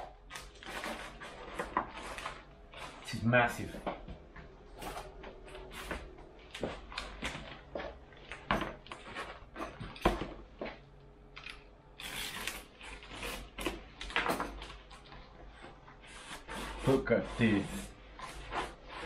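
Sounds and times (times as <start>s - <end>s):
cardboard scraping rustle: 0.3s - 3.8s.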